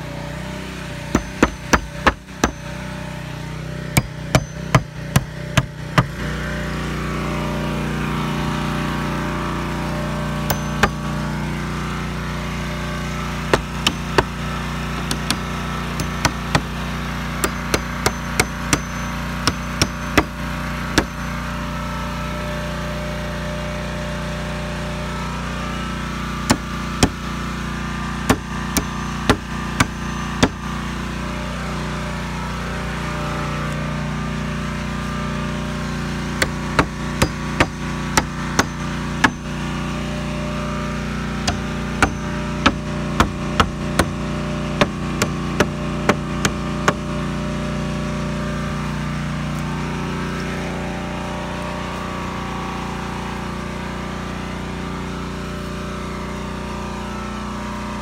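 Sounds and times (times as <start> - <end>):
hammer striking nails into wood: 1.1 - 2.7, 4.0 - 6.2, 10.5 - 11.1, 13.5 - 14.4, 15.0 - 16.8, 17.4 - 20.4, 21.0 - 21.3, 26.5 - 27.2, 28.3 - 30.6, 36.4 - 39.5, 41.4 - 47.1.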